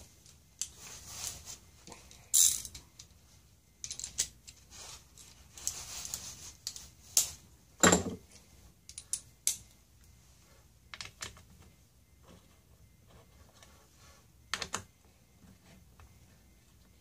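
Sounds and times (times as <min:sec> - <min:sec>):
metal screws clicking and rattling: 0:02.1 - 0:03.2, 0:03.8 - 0:04.6.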